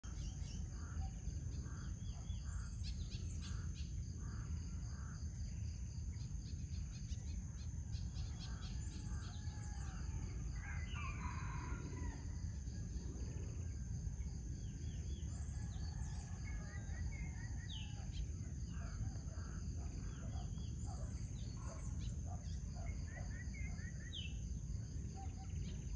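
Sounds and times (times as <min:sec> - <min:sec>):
rooster crowing: 0:09.0 - 0:12.4, 0:15.4 - 0:17.6.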